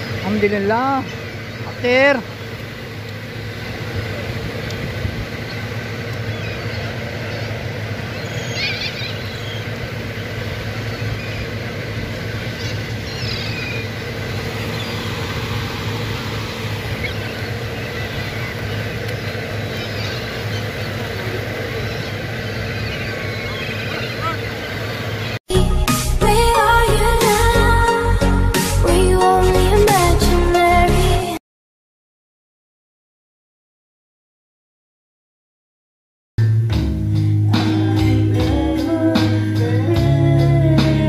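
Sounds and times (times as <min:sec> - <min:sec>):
gulls calling: 0:00.0 - 0:25.4, 0:37.5 - 0:41.0
steady low rumble: 0:00.0 - 0:27.8.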